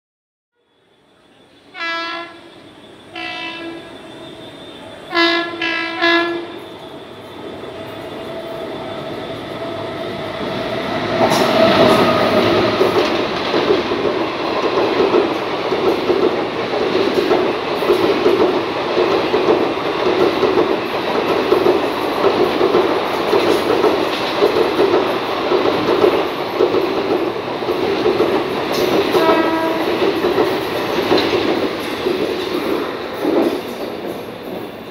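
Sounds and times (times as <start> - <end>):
train rumbling past: 0.6 - 34.9
train horn blasts: 1.7 - 6.7, 29.1 - 30.0
wheels clattering on rail joints: 10.4 - 34.9.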